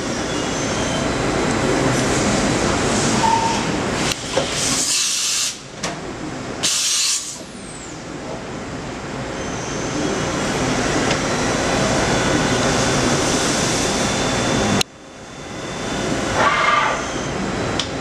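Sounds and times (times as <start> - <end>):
machining center running: 7.4 - 18.0.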